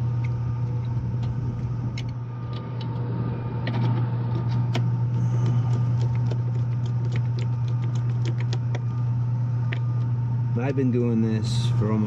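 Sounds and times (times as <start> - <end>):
steady low hum: 0.0 - 12.0
screwdriver clicking and scraping: 3.6 - 8.9.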